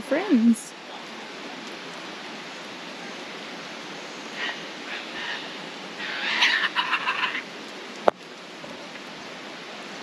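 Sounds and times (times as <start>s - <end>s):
background hiss: 0.0s - 10.0s
kookaburra calling: 4.4s - 7.5s.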